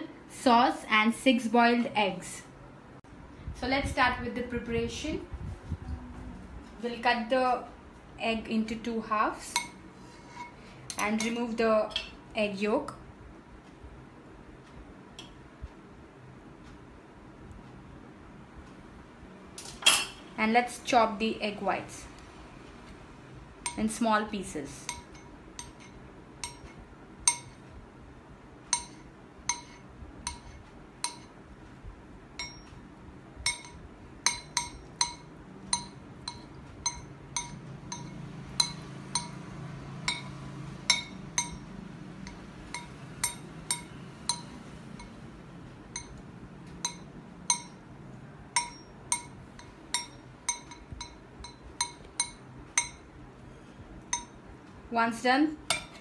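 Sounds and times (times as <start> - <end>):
knife chopping on metal plate: 55.7 - 56.0.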